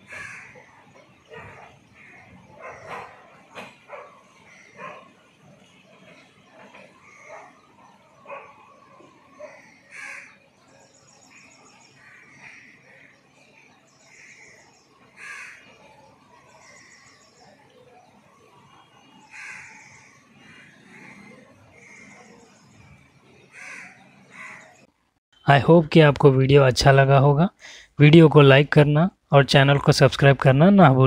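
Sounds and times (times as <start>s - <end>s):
harsh crow caws: 0.0s - 0.7s, 2.0s - 2.9s, 4.3s - 5.0s, 9.4s - 10.4s, 11.3s - 13.2s, 14.1s - 14.6s, 15.2s - 15.9s, 19.2s - 22.4s, 23.5s - 24.8s.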